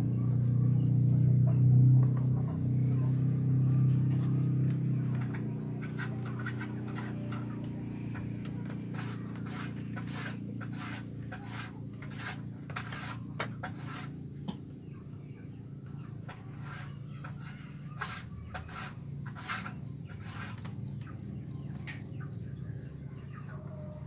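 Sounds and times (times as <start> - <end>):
bamboo slats clicking and scraping: 4.2 - 15.0, 15.8 - 22.1.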